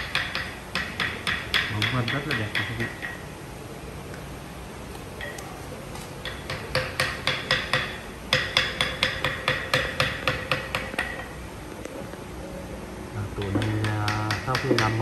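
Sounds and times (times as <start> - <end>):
hammer blows ringing: 0.0 - 3.3, 5.2 - 11.4, 13.4 - 15.0.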